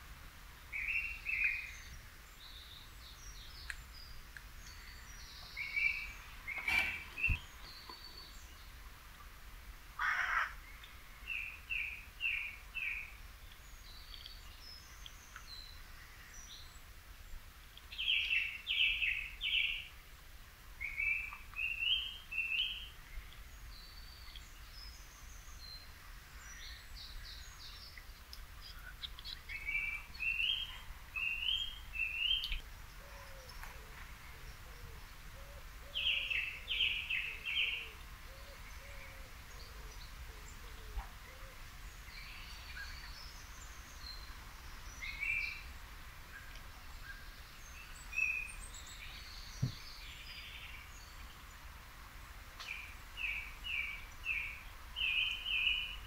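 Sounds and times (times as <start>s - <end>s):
song thrush singing: 0.5s - 9.4s, 10.0s - 20.1s, 20.7s - 56.0s
small birds chirping: 0.6s - 9.4s, 10.0s - 20.0s, 20.8s - 56.0s
low repeated bird call: 0.7s - 8.8s, 10.0s - 13.2s.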